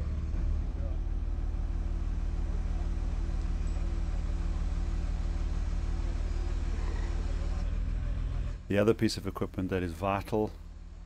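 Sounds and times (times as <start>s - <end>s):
crane engine idling: 0.0s - 11.0s.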